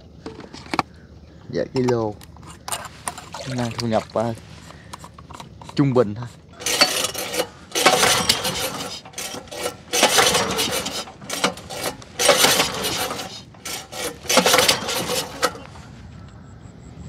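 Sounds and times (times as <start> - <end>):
pull-start cord rasping whirr: 6.6 - 15.8.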